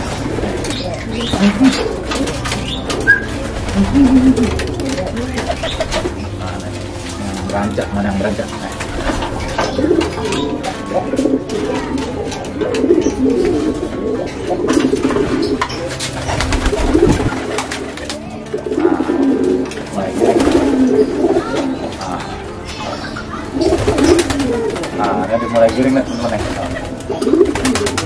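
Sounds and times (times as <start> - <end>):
pigeons cooing: 0.0 - 28.0
pigeon wing flaps and scuffles: 16.2 - 18.2.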